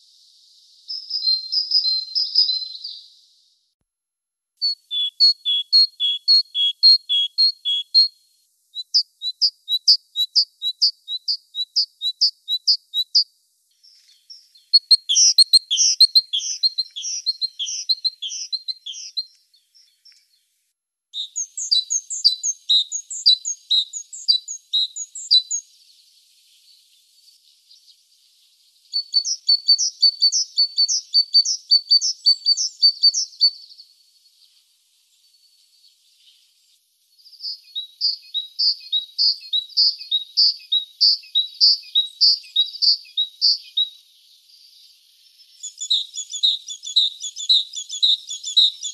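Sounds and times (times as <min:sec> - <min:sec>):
great tit singing: 0:00.1 - 0:03.3, 0:04.6 - 0:20.4, 0:21.2 - 0:28.0, 0:28.7 - 0:34.3, 0:37.2 - 0:48.9.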